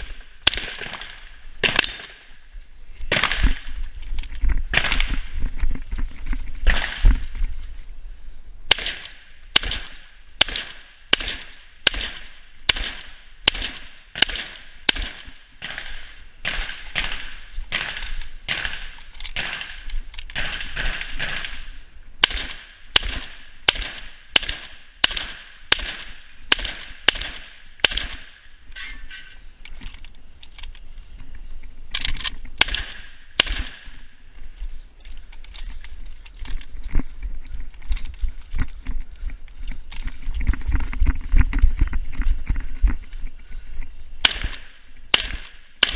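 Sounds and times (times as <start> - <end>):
shotgun shots: 0.0 - 2.3, 3.1 - 3.7, 4.7 - 5.3, 6.6 - 7.2, 8.7 - 28.5, 32.6 - 34.1, 44.2 - 45.9.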